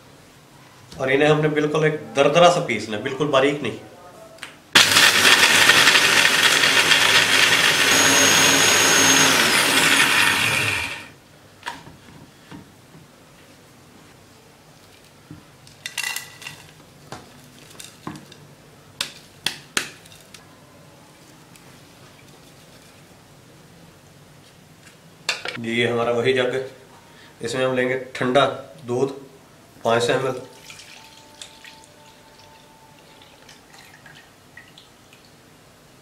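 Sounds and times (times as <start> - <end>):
electric blender grinding nuts: 4.8 - 11.1.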